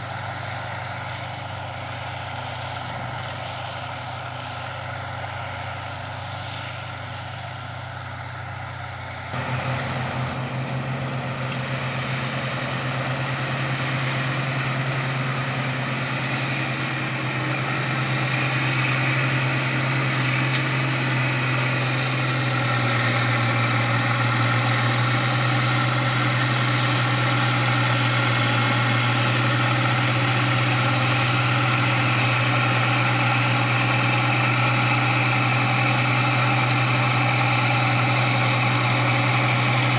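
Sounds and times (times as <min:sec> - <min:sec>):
tractor diesel engines droning: 0:00.0 - 0:39.9.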